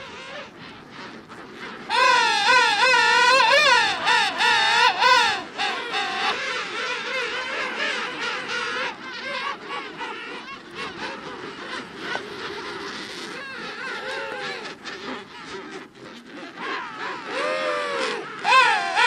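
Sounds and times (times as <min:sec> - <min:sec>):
penguins calling: 0:00.0 - 0:19.0.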